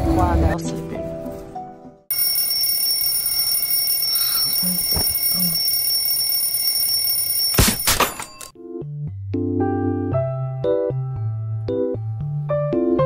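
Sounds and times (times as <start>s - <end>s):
alarm clock click: 2.1s - 8.5s
alarm clock ringing: 2.1s - 8.6s.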